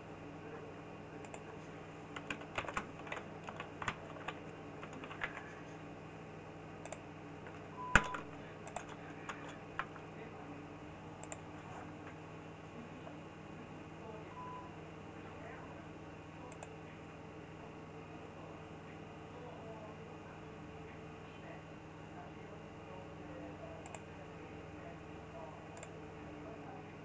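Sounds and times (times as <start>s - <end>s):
keyboard typing: 1.2s - 5.8s, 6.8s - 10.1s.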